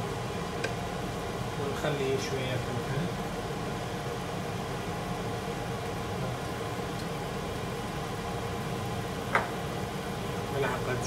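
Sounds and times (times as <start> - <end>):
low mechanical hum with hiss: 0.0 - 11.0.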